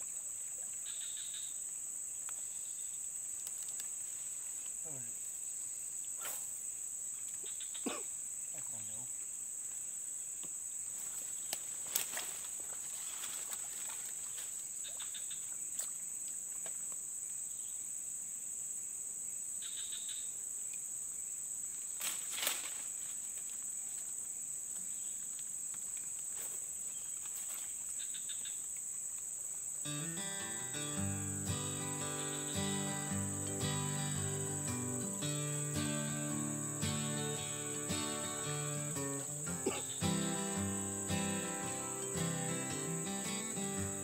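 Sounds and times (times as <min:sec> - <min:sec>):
high-pitched insect drone: 0:29.9 - 0:44.0.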